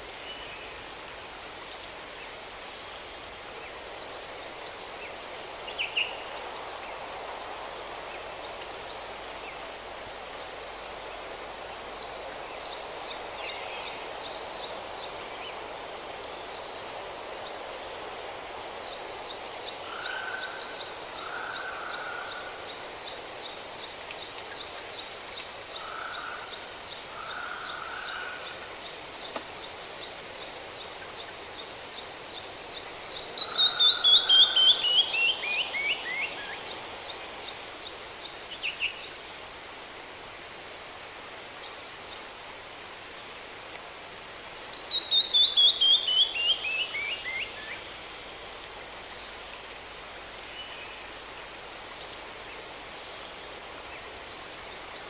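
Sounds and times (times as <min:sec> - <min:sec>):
steady hiss: 0:00.0 - 0:55.0
songbirds singing: 0:18.8 - 0:39.4.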